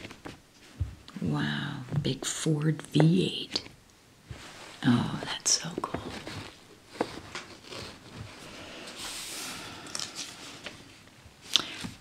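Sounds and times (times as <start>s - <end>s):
hand brushing over paper: 4.3s - 4.9s, 6.0s - 9.6s
paper pages rustling: 5.6s - 9.3s.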